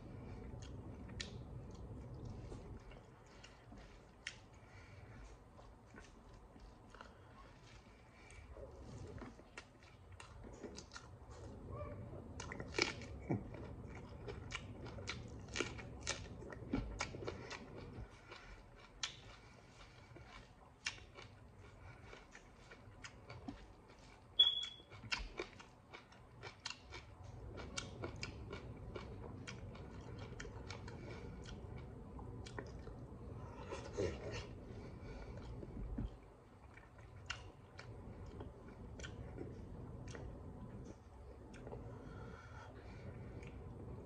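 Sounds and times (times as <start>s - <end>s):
close-up chewing: 0.0s - 44.0s
short high squeak: 24.4s - 24.8s.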